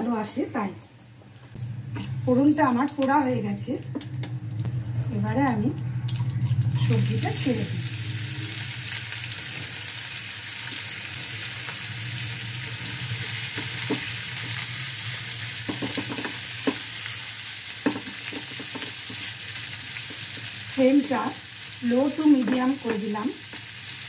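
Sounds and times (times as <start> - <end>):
steady low hum: 0.0 - 9.8
vegetable strips sizzling in oil: 6.7 - 24.0.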